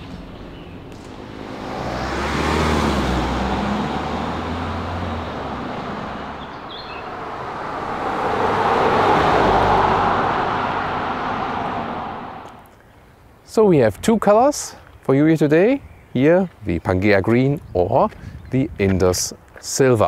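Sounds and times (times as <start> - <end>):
car driving past: 0.0 - 12.6.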